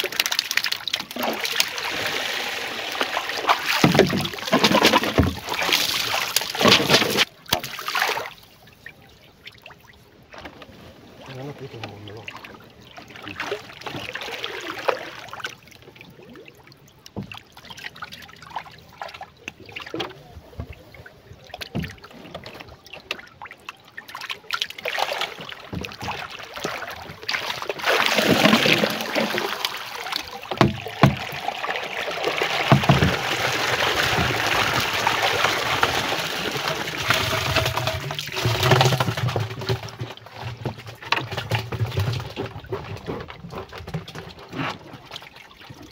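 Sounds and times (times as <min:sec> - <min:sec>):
water splashing and sloshing: 0:00.0 - 0:45.9
knocks on wooden canoe: 0:30.5 - 0:31.3, 0:32.7 - 0:33.2.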